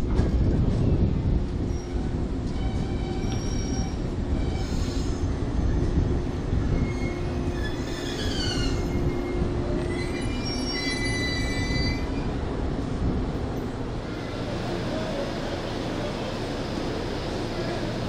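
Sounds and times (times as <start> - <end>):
train rumble: 0.0 - 18.0
train wheels and brakes squealing: 1.6 - 6.0, 6.6 - 12.4.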